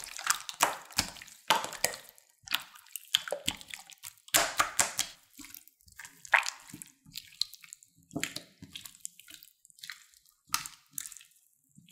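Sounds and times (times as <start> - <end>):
slime squelching: 0.0 - 11.6.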